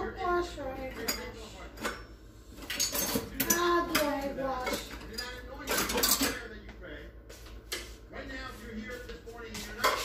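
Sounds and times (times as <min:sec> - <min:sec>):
dishes and utensils clattering: 0:00.8 - 0:06.5, 0:09.6 - 0:10.0.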